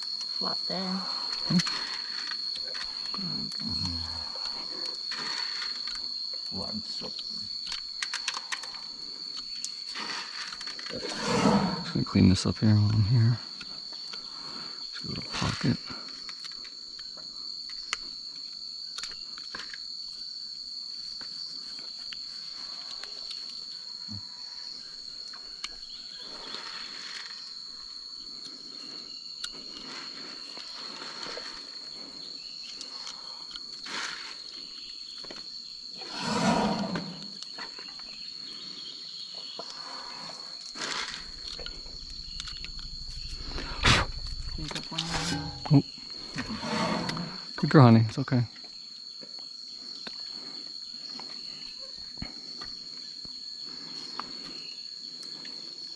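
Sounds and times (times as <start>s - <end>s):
high-pitched insect drone: 0.0s - 55.9s
knife scraping hoof: 43.6s - 45.8s.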